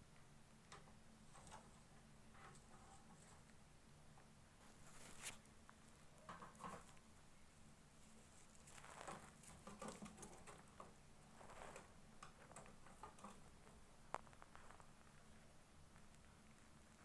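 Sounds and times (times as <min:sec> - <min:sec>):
bird scratching and tapping on cage: 0:00.7 - 0:03.5, 0:06.3 - 0:06.9, 0:08.8 - 0:13.8.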